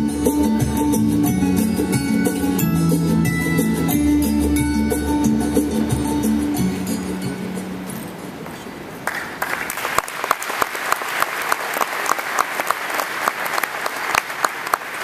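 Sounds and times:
music: 0.0s - 8.3s
audience applause: 9.0s - 15.0s.

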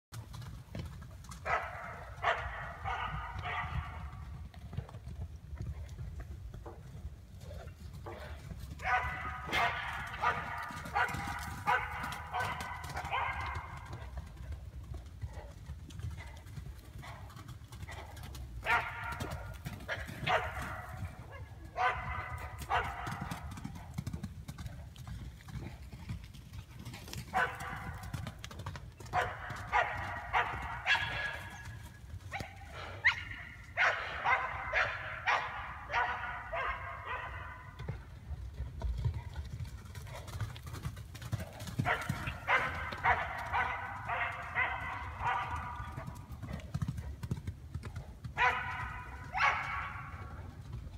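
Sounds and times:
dog barking: 1.4s - 4.0s, 8.8s - 13.8s, 18.6s - 23.5s, 27.3s - 28.0s, 29.1s - 31.6s, 32.3s - 37.8s, 41.8s - 46.1s, 48.4s - 50.2s.

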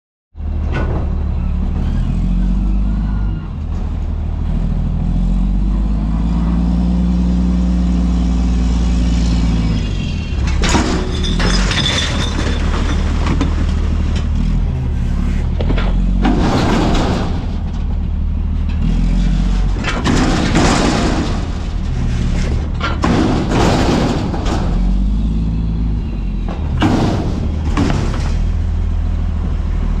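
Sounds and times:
garbage truck diesel engine: 0.4s - 30.0s
steel dumpster banging: 9.1s - 29.2s
trash crashing into hopper: 10.4s - 14.3s, 15.6s - 18.0s, 18.8s - 25.2s, 26.5s - 28.7s.

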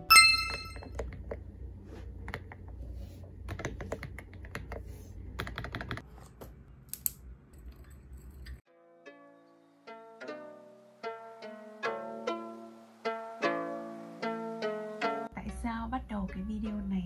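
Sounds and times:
typing on mechanical keyboard: 5.4s - 6.0s.

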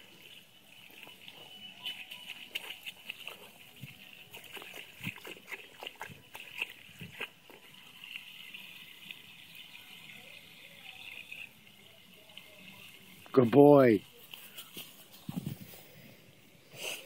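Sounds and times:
water running from a hose: 0.0s - 15.7s
dog lapping and smacking: 1.8s - 7.7s.

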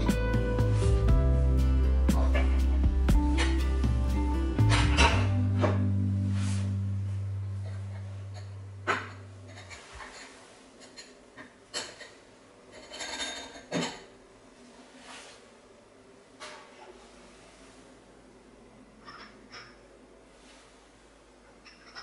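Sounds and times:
background music: 0.0s - 9.6s
ceramic plates clinking: 7.6s - 14.1s, 21.6s - 22.0s.

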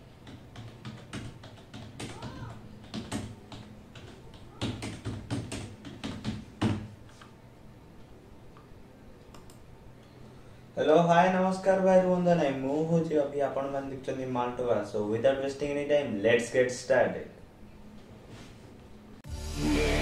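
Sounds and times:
keyboard typing clicks: 9.3s - 9.6s.

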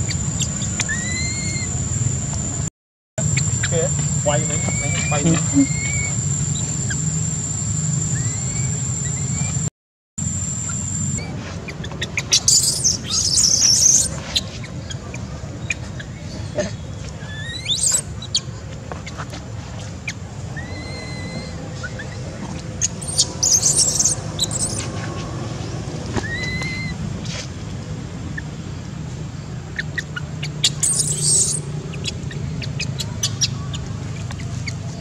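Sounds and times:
baby monkey squealing cries: 0.0s - 1.8s, 3.3s - 7.2s, 8.1s - 9.6s, 10.6s - 16.6s, 17.2s - 18.4s, 20.6s - 24.9s, 26.2s - 27.0s, 29.8s - 34.8s
short whistled chirps: 0.0s - 1.8s, 3.3s - 7.1s, 8.0s - 9.6s, 30.8s - 31.7s
sharp rising squeak: 0.0s - 2.6s, 3.2s - 16.2s, 20.5s - 27.4s, 29.8s - 34.9s.

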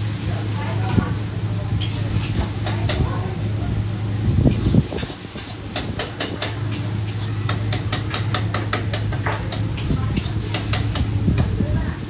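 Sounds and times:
food frying: 0.0s - 12.0s
metal spatula scraping a wok: 4.5s - 11.1s.

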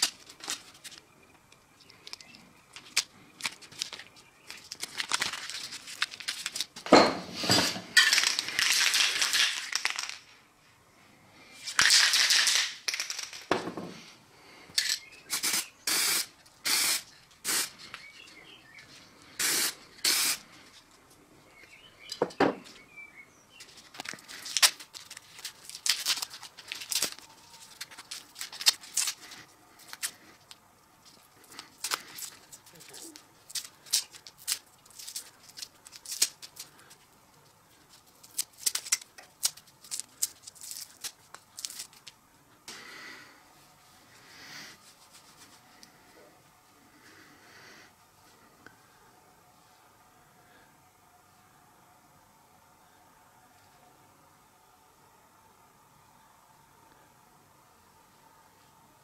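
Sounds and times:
masking tape rustling: 0.0s - 6.9s, 23.6s - 42.2s, 44.8s - 46.0s
aerosol spray can hissing: 15.3s - 17.7s, 19.4s - 20.4s.

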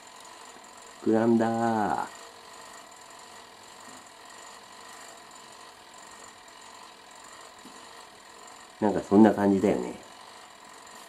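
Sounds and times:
dial timer ticking: 0.0s - 11.0s
toaster oven running: 0.0s - 11.0s.

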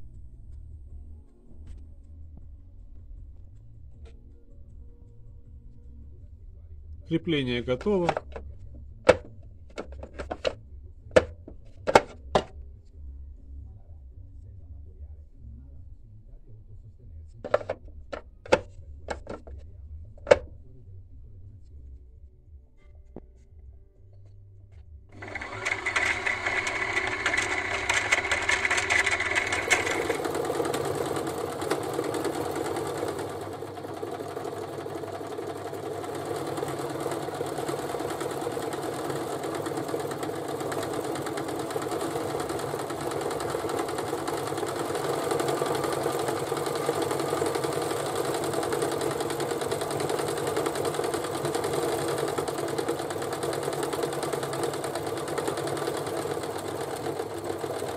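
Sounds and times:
electric sewing machine running: 25.2s - 57.9s.

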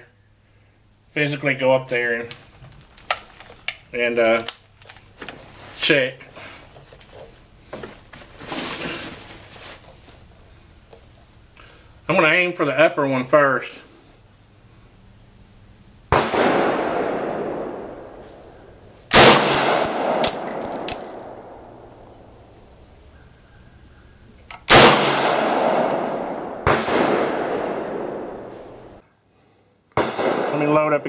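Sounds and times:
rifle shots echoing: 19.1s - 21.7s, 24.7s - 28.5s
light metallic clinks: 19.8s - 21.5s, 25.2s - 26.6s.

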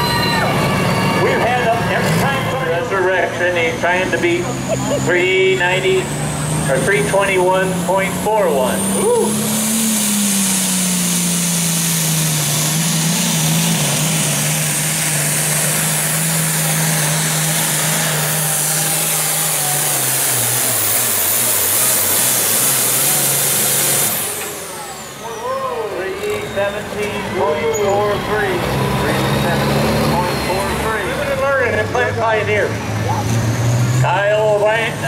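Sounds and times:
turbo whistle winding down: 0.0s - 1.7s, 8.4s - 13.6s, 15.9s - 31.3s
diesel tractor engine at full throttle: 0.0s - 35.0s.

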